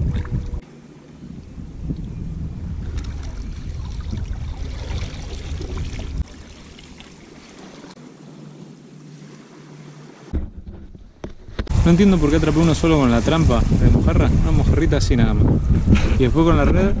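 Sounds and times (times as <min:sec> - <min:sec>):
low rumble: 0:01.2 - 0:06.6
water splashing: 0:02.7 - 0:14.5.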